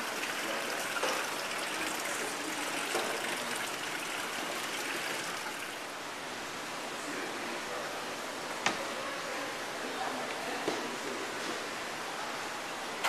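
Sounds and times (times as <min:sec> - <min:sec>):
running water rushing: 0:00.0 - 0:06.1.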